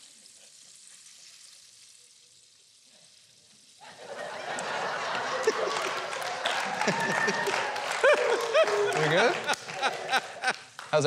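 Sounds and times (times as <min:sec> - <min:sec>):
faint steady hiss: 0:00.0 - 0:11.0
studio audience applause: 0:03.8 - 0:11.0.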